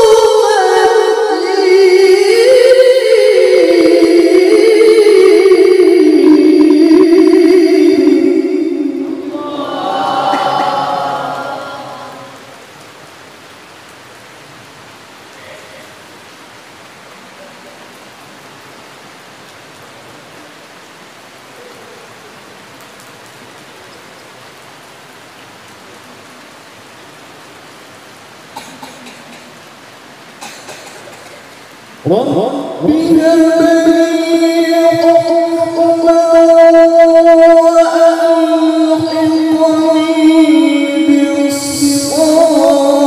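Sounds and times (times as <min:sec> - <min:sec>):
man reciting melodically into microphone: 0:00.0 - 0:12.5, 0:32.0 - 0:43.0
background hiss: 0:00.0 - 0:43.0.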